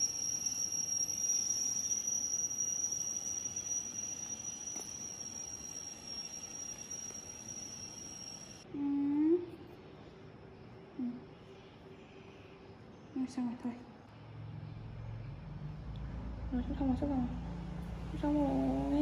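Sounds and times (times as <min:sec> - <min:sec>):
high-pitched insect call: 0:00.0 - 0:08.7.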